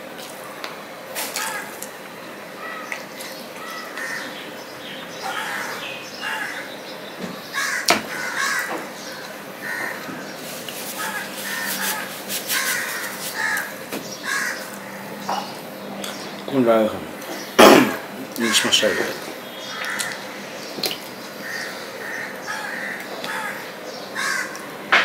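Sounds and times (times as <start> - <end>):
crows cawing: 1.2 - 1.8, 2.6 - 3.0, 3.6 - 4.6, 5.2 - 6.9, 7.5 - 15.6, 17.8 - 20.7, 21.4 - 25.0
fingers mixing rice on steel plate: 10.4 - 13.8.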